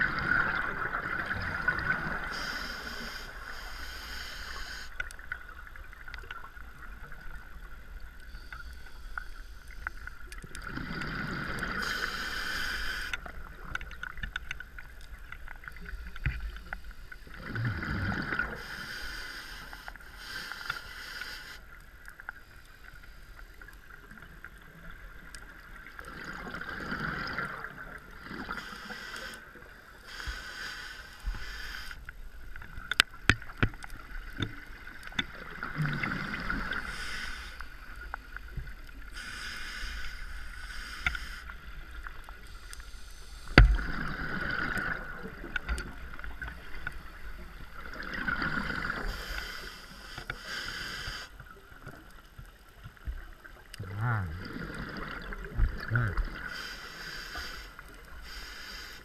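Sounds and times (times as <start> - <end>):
exhaled bubbles rumbling underwater: 0.0 - 3.9, 9.7 - 12.2, 13.2 - 18.8, 23.8 - 28.7, 32.3 - 37.2, 41.6 - 50.0, 51.4 - 56.7
regulator hissing inhale: 2.1 - 5.2, 8.3 - 10.2, 11.1 - 13.3, 18.5 - 21.8, 28.3 - 32.1, 36.4 - 38.0, 39.0 - 45.0, 48.7 - 51.5, 56.4 - 59.0.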